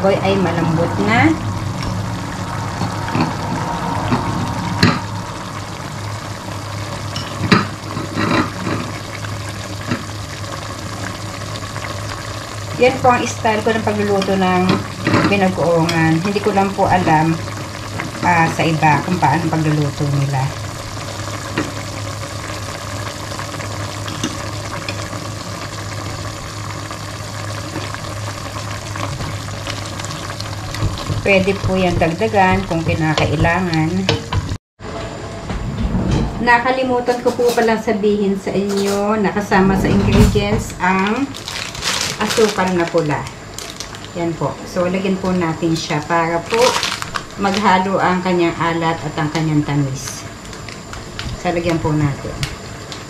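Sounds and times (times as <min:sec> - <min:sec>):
water boiling in a pot: 0:00.0 - 0:34.6, 0:37.8 - 0:53.0
constant low hum: 0:00.0 - 0:53.0.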